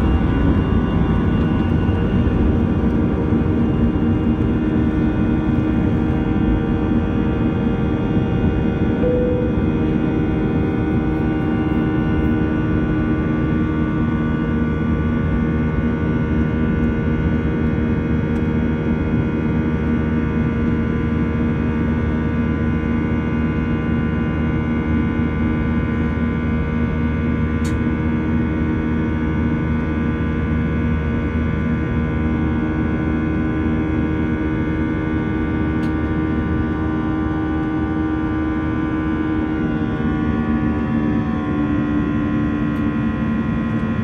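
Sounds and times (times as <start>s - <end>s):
jet engines droning in cabin: 0.0s - 44.0s.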